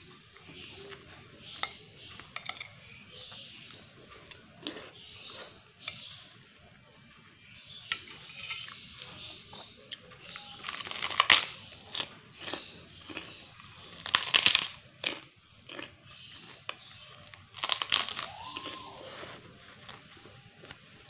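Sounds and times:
cracker crunching: 0:00.0 - 0:06.2, 0:08.1 - 0:21.0
quiet chewing: 0:00.0 - 0:07.3, 0:07.9 - 0:21.0.

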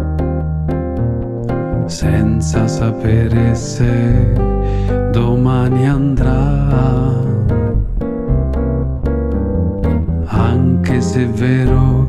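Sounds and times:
double bass notes: 0:00.0 - 0:12.0
guitar picking: 0:00.0 - 0:12.0.

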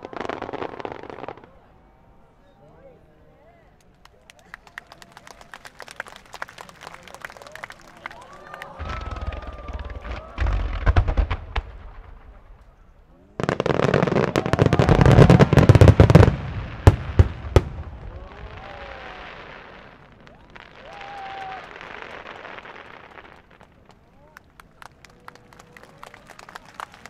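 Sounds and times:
crowd voices: 0:00.0 - 0:27.0
fireworks bursting: 0:08.8 - 0:24.1.

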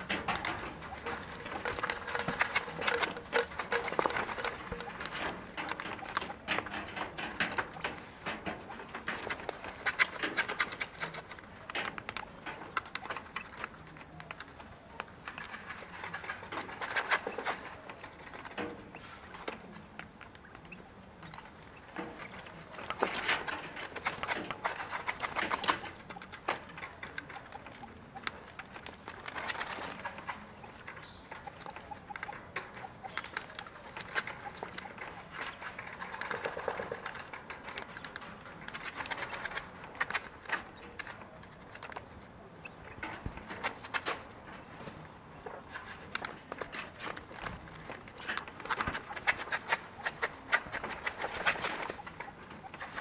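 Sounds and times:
birds scratching in sand: 0:00.0 - 0:53.0.

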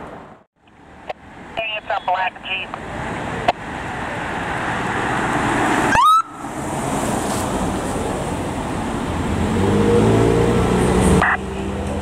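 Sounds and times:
traffic passing: 0:00.0 - 0:12.0
police siren whoop: 0:05.9 - 0:06.4.

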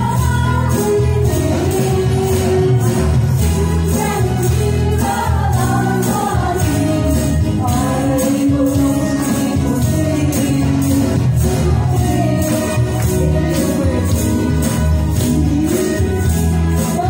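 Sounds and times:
karaoke backing track: 0:00.0 - 0:17.0
women singing pop song: 0:00.0 - 0:17.0.

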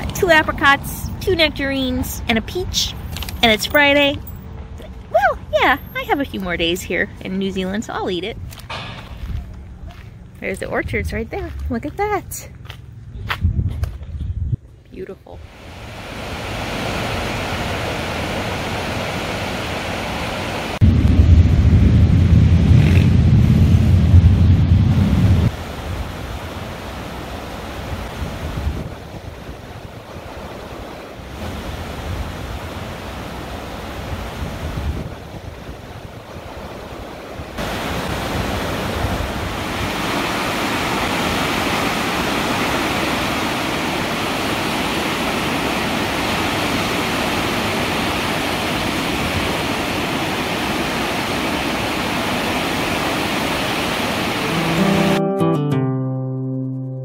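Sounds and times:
wind on microphone: 0:13.1 - 0:14.7, 0:20.8 - 0:26.4, 0:27.8 - 0:54.4
river rapids roaring: 0:15.4 - 0:20.8, 0:25.5 - 0:55.2.

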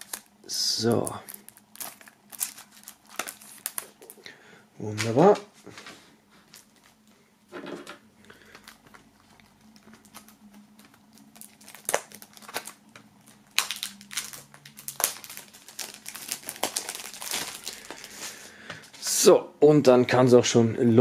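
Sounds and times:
plastic film crinkling: 0:00.0 - 0:04.3, 0:06.3 - 0:07.2, 0:08.4 - 0:19.1.

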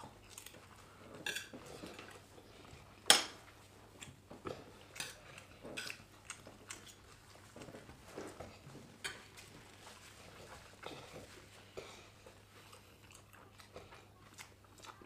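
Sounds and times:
cutlery clinking on plates: 0:01.2 - 0:01.6.

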